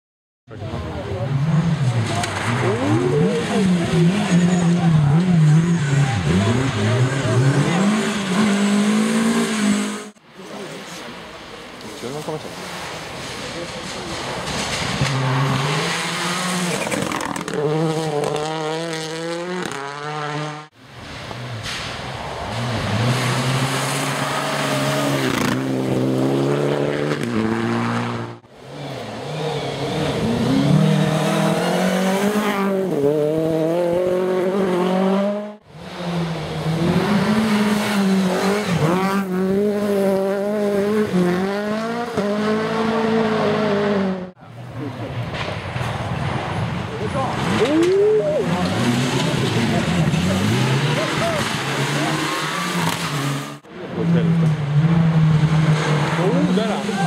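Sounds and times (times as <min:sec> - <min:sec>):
rally cars passing revving: 0:00.5 - 0:57.0.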